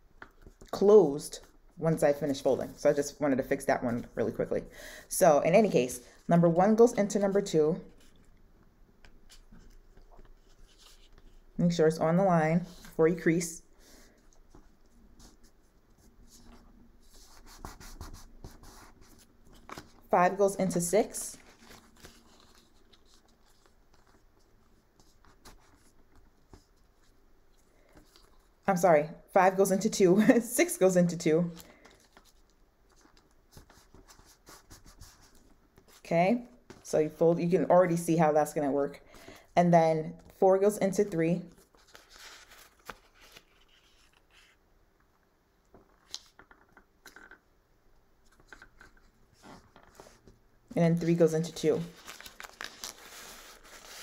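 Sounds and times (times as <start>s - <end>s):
paper being folded and creased: 21.1s - 28.6s, 31.8s - 36.0s, 41.6s - 44.6s, 48.2s - 50.4s, 51.6s - 54.0s.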